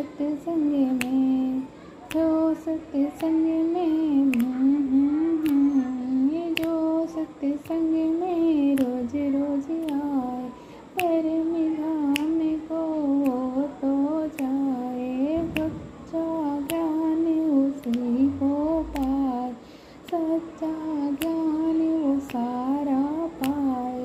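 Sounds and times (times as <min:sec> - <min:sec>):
woman humming a melody: 0:00.0 - 0:24.0
sharp click keeping time: 0:02.1 - 0:05.7, 0:12.0 - 0:24.0.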